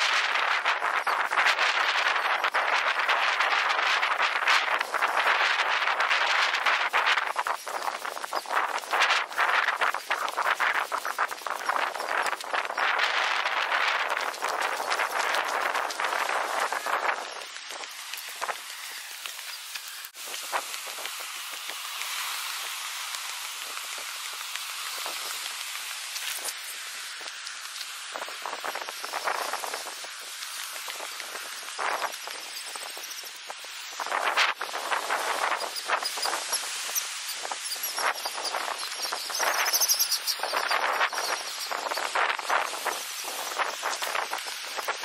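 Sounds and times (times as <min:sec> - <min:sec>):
steady even hiss: 0:00.0 - 0:45.0.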